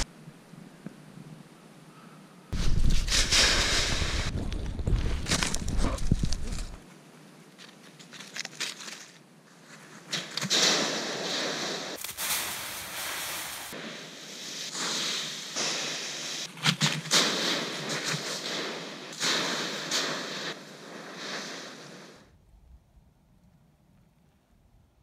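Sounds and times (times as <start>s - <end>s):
dry leaves rustling and crunching: 4.1s - 6.8s, 7.5s - 10.5s, 12.0s - 13.8s.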